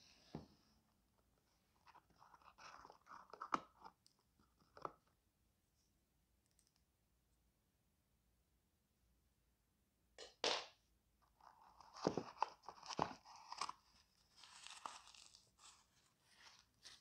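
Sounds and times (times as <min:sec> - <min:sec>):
packing stuffing crinkling: 0:11.4 - 0:17.0.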